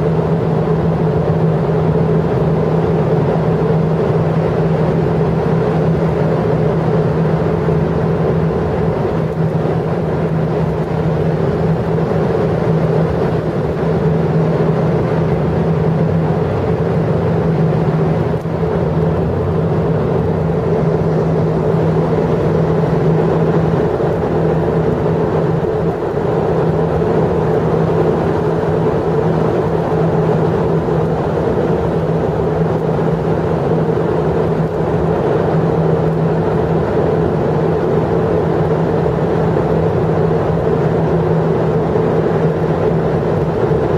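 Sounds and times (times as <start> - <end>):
engine drone: 0.0 - 43.9.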